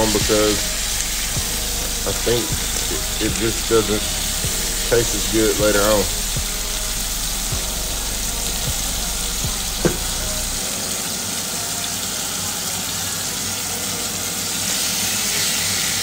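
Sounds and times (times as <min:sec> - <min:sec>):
chicken sizzling in hot oil: 0:00.0 - 0:16.0
oil pop: 0:09.8 - 0:10.3.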